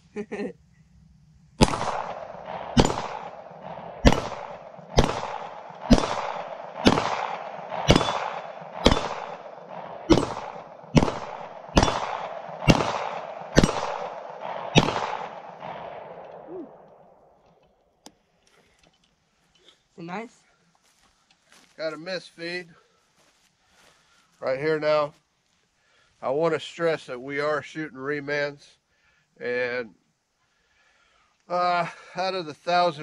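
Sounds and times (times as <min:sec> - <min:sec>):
pistol shots with echo: 0:01.6 - 0:16.9.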